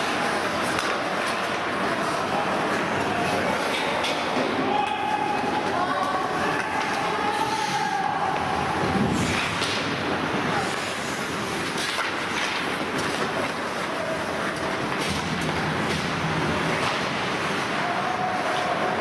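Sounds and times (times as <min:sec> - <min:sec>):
hockey stick clacks: 0:00.2 - 0:02.0, 0:09.2 - 0:17.7.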